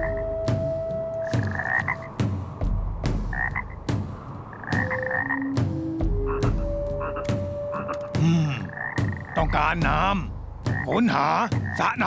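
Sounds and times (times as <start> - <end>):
cartoon frogs croaking: 1.2 - 2.2, 3.3 - 3.8, 4.5 - 9.7, 10.7 - 12.0.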